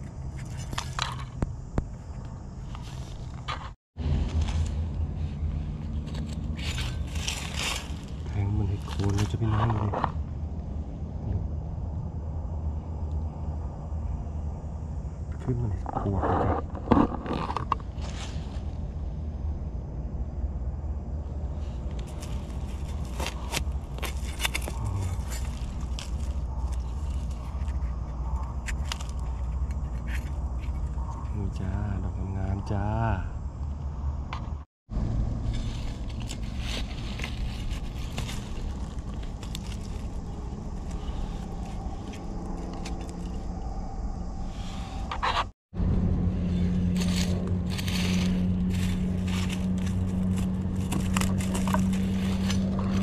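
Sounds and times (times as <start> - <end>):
low rumble: 0.0 - 53.0
blade scraping dry soil: 2.6 - 10.2, 15.8 - 18.8, 21.5 - 31.8, 35.2 - 43.6, 44.5 - 53.0
dry leaves crackling: 4.0 - 9.8, 21.5 - 30.9, 34.9 - 43.5, 46.0 - 53.0.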